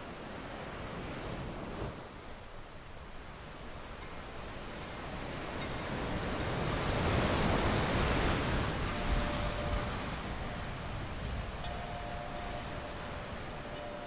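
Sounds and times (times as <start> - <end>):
ocean wave washing up beach: 6.0 - 14.0.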